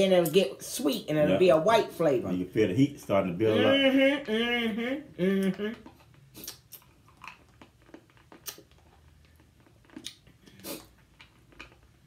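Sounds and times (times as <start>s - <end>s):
wet mouth clicks and lip smacks: 5.4s - 11.9s.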